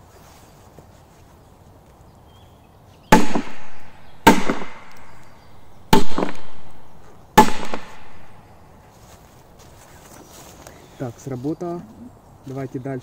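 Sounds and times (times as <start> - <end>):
firecracker bangs: 3.1 - 4.9, 5.9 - 6.7, 7.4 - 8.4.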